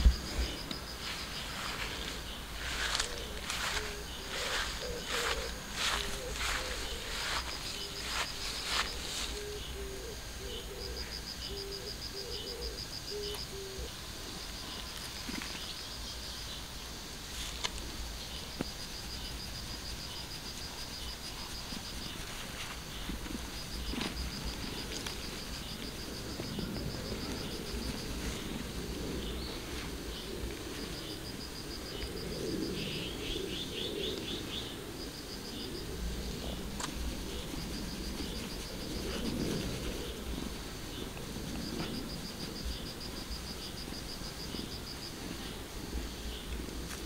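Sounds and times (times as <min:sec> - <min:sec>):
insect trilling: 0:00.0 - 0:16.7
bird cooing: 0:02.6 - 0:14.0, 0:32.1 - 0:34.9.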